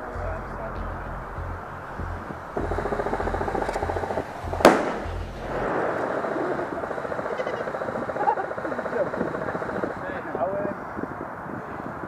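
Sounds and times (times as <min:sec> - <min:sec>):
airsoft rifle firing full-auto: 0:02.6 - 0:05.0
sharp loud crack: 0:02.6 - 0:09.3.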